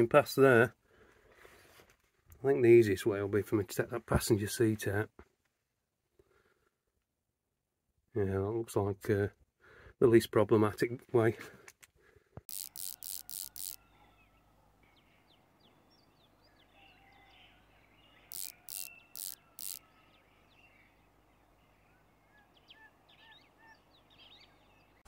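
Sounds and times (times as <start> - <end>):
socket ratchet clicking: 12.5 - 13.8, 18.3 - 19.8
birds chirping faintly: 12.5 - 25.0.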